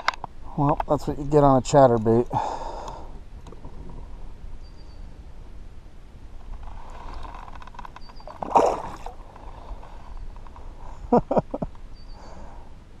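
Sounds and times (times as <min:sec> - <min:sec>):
fish splashing into water: 0:08.2 - 0:09.2.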